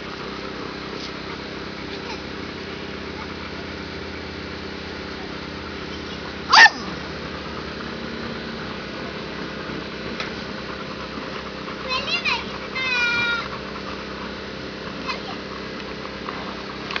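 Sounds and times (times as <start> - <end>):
steady low hum: 0.0 - 17.0
puppy yelping: 5.9 - 7.1.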